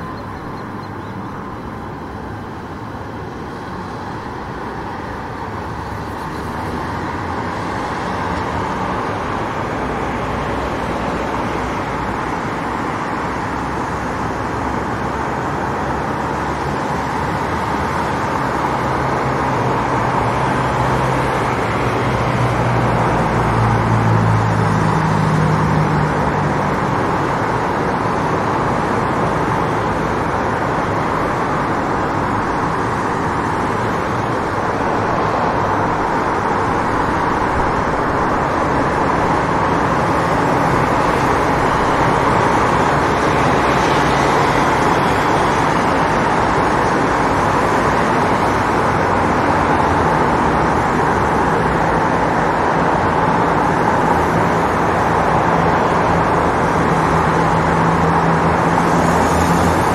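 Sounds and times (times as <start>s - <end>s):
road traffic noise: 0.0s - 59.9s
vehicle engine drone: 0.0s - 59.9s.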